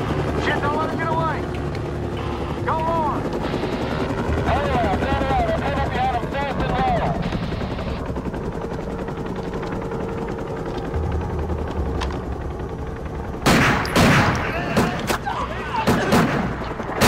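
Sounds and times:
helicopter drone: 0:00.0 - 0:17.0
automatic rifle gunfire: 0:13.4 - 0:15.1, 0:15.8 - 0:17.0.

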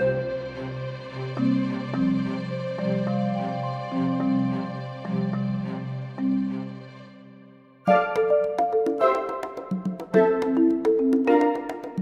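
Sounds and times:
light ticking beat: 0:07.9 - 0:12.0.

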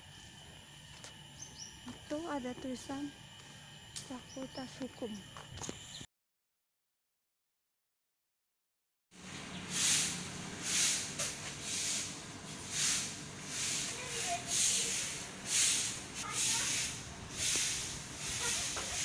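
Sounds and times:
broom sweeping pavement: 0:09.2 - 0:19.0.

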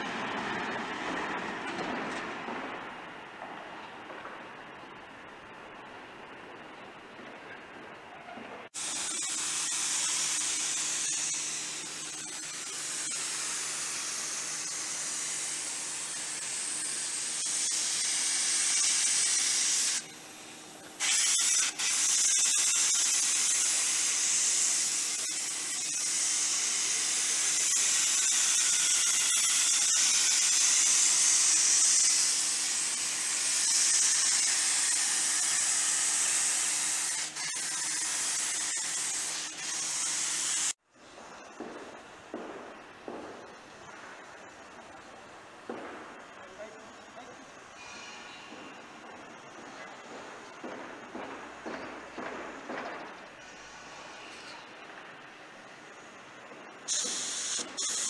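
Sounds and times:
spray gun hissing: 0:08.7 - 0:40.8, 0:47.7 - 0:49.0, 0:56.9 - 0:58.0.

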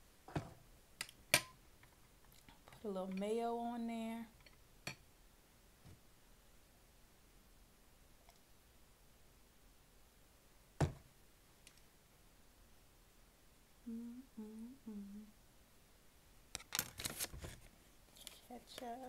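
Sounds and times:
woman humming: 0:13.8 - 0:15.4.

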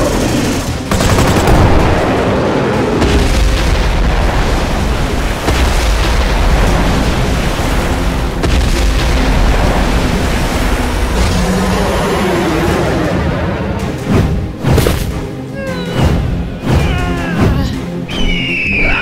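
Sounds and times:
deep booms and explosions: 0:00.0 - 0:15.2
water splash: 0:03.0 - 0:12.3.

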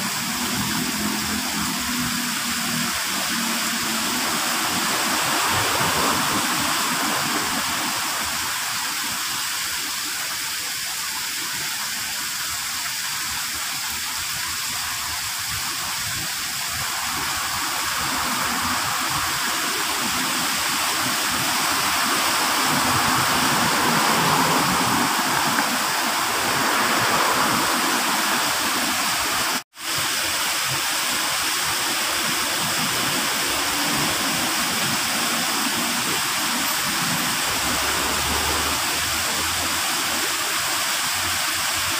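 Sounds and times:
waterfall spilling into pond: 0:00.0 - 0:41.9.

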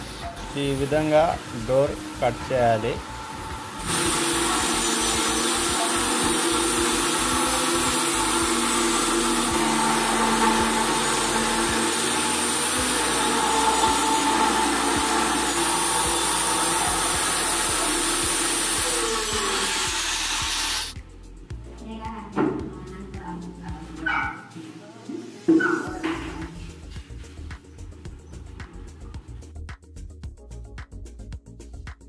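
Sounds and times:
circular saw cutting wood: 0:00.0 - 0:21.0.

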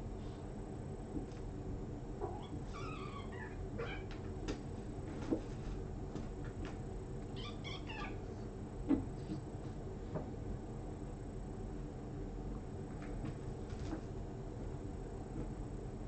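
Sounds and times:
steady low hum: 0:00.0 - 0:16.0
cats mewing: 0:02.2 - 0:04.2, 0:07.4 - 0:08.3.

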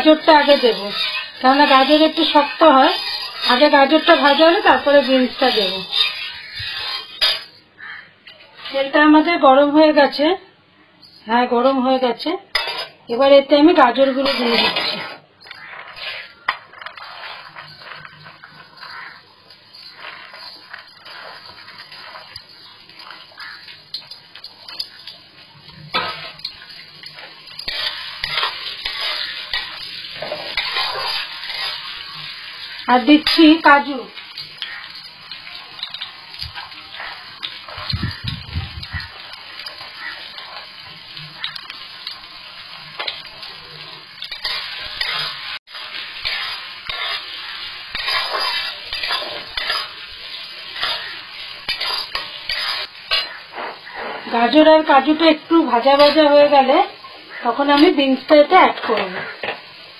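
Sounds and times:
metal spatula scraping pan: 0:00.0 - 0:07.6, 0:12.5 - 0:13.0, 0:13.9 - 0:40.7, 0:44.2 - 0:56.6
carrots sizzling in oil: 0:00.0 - 0:10.3, 0:11.3 - 0:59.9.

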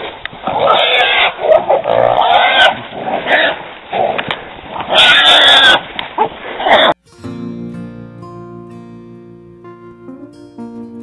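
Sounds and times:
hog squealing: 0:00.6 - 0:01.4, 0:02.0 - 0:03.5, 0:04.9 - 0:05.8.

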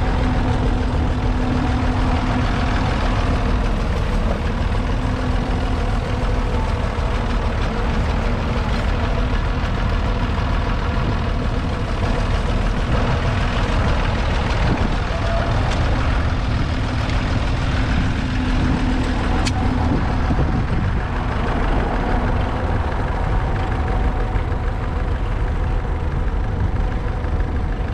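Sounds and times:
tractor diesel engine running: 0:00.0 - 0:27.9.

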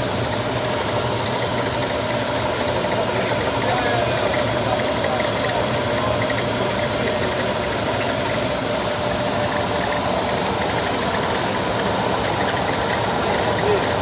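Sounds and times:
machine running with whine: 0:00.0 - 0:14.0.

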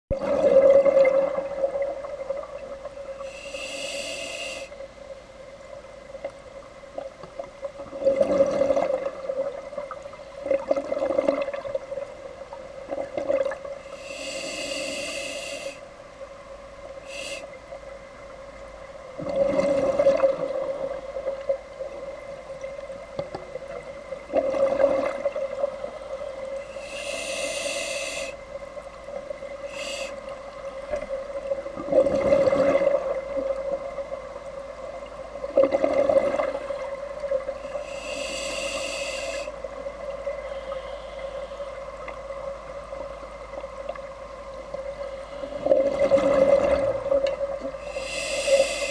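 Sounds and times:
regulator hissing inhalations: 0:03.2 - 0:04.8, 0:13.8 - 0:15.9, 0:17.0 - 0:17.6, 0:26.6 - 0:28.4, 0:29.6 - 0:30.3, 0:37.6 - 0:39.6, 0:47.8 - 0:48.9.

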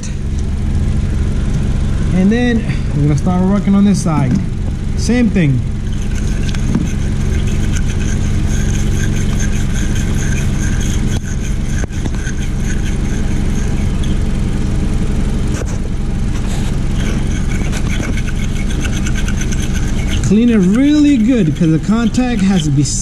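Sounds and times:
car engine idling: 0:00.0 - 0:23.0
wire brush scraping metal clamp: 0:05.9 - 0:14.2, 0:16.4 - 0:23.0.

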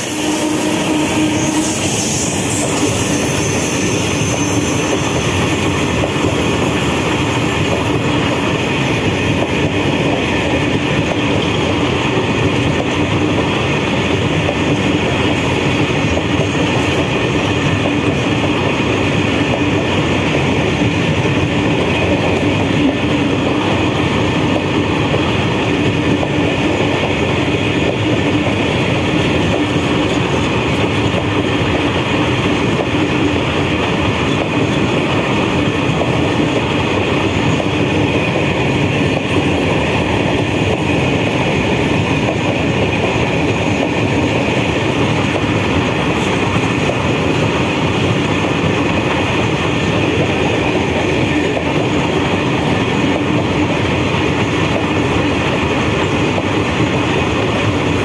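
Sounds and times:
high ringing tone: 0:00.0 - 0:05.6
freight train wheels rumbling on rail: 0:00.0 - 0:58.0.

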